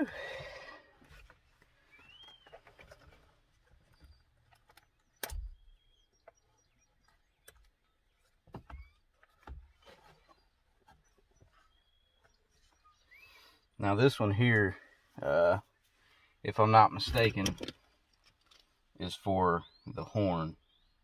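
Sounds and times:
faint bird chirps: 1.8s - 3.1s, 3.8s - 13.8s
clicks and knocks handling parts: 17.0s - 18.8s.

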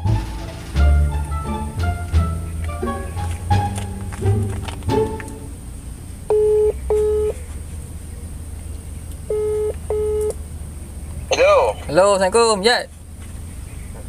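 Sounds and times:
plucked-string music: 0.0s - 5.8s
steady low hum: 0.1s - 14.0s
telephone ringback tone: 6.3s - 7.4s, 9.3s - 10.3s.

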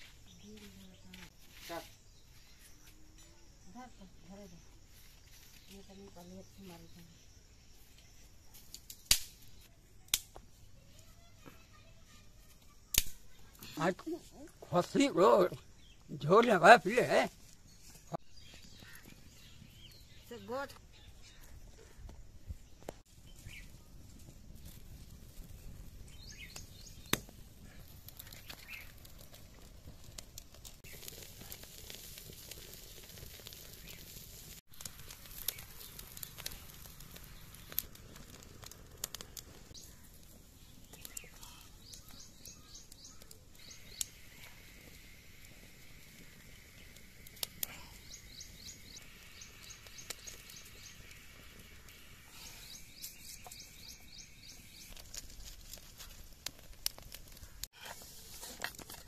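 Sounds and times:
outdoor background noise: 0.0s - 59.0s
wood fire crackling: 0.0s - 59.0s
birds chirping: 13.3s - 29.7s, 33.6s - 55.4s.

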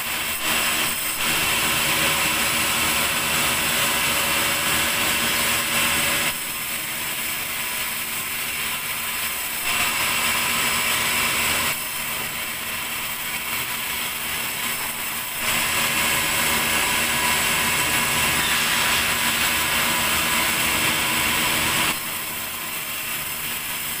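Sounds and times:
band saw drone and whine: 15.5s - 23.2s.

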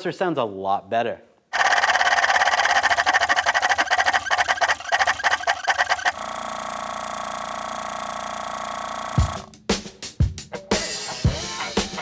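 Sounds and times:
compressor pulsing chatter: 1.6s - 9.5s.

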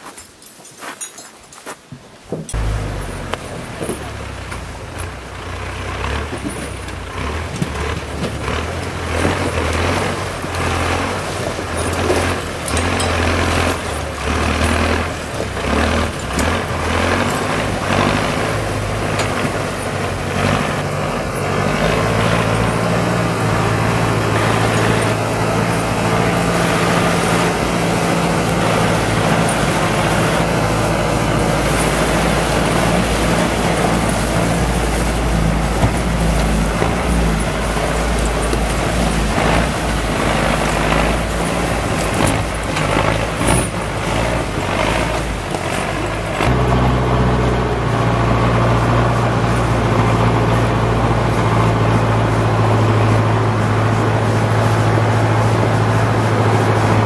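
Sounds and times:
truck engine labouring: 2.5s - 57.0s.

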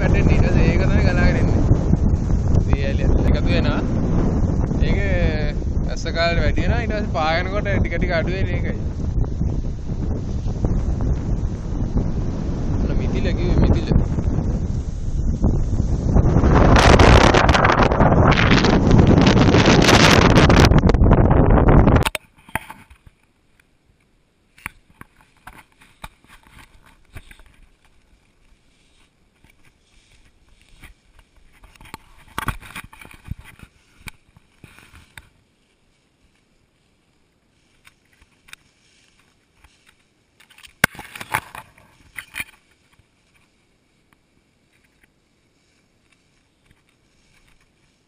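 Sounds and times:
wind gust on microphone: 0.0s - 22.2s
grass rustling against camera: 0.0s - 48.0s.

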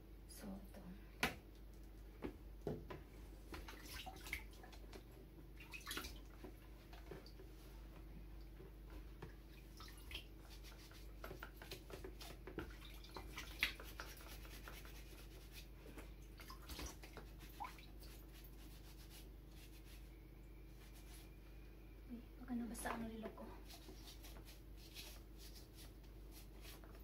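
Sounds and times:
water dripping: 9.2s - 10.3s
sponge rubbing: 13.2s - 15.7s, 16.7s - 20.1s, 20.8s - 21.4s, 23.6s - 27.0s.

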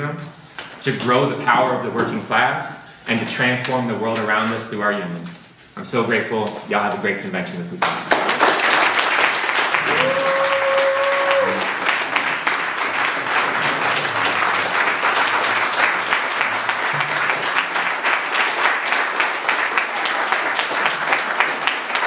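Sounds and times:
crowd applauding: 7.8s - 22.0s.

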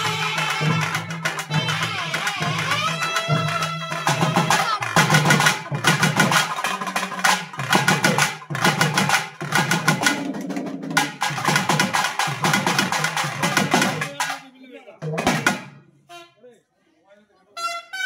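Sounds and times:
wind instrument gliding melody: 0.0s - 5.0s
folk drum ensemble playing: 0.0s - 15.8s.

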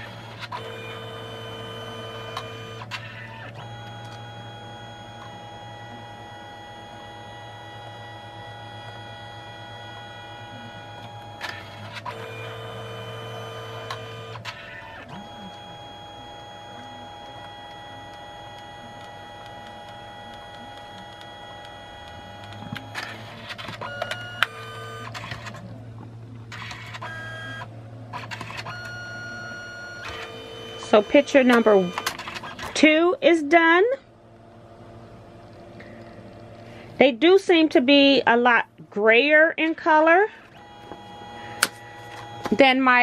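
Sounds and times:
printer motor whirring: 0.0s - 33.0s, 40.4s - 43.0s
printer clicks: 29.9s - 32.8s, 40.5s - 42.7s.

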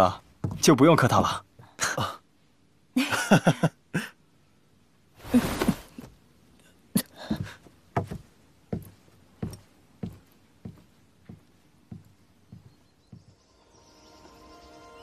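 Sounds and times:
footsteps: 7.3s - 13.4s.

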